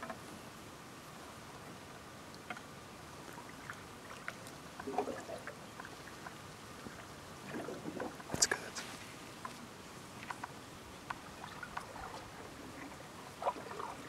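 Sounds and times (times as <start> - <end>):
steady hiss: 8.2 - 11.3.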